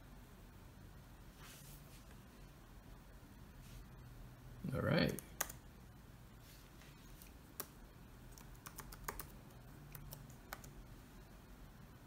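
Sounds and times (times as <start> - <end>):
laptop keyboard key presses: 8.3 - 10.7.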